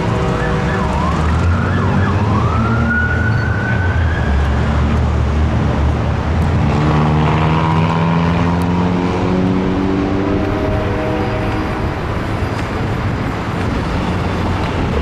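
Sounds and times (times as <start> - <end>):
emergency siren yelp and wail: 0.0 - 5.4.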